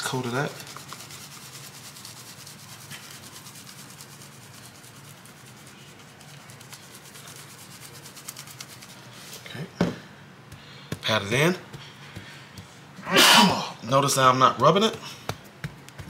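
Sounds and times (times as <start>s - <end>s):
seasoning container shaking: 0.0s - 9.4s.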